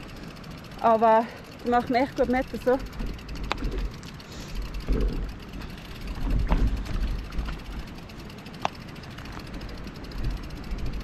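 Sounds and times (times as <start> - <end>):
wind rumble on microphone: 6.0 - 7.9, 10.0 - 11.0.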